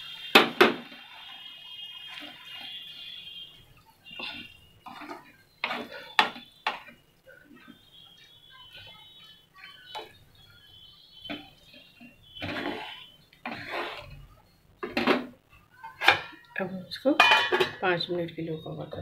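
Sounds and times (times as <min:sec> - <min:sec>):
wooden spatula scraping a pan: 0:00.4 - 0:16.4.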